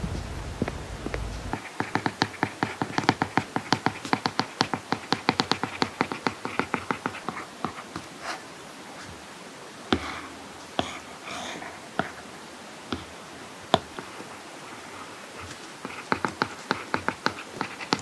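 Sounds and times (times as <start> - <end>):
stylus tapping on tablet screen: 0.6 - 8.1, 13.7 - 14.4, 15.4 - 18.0.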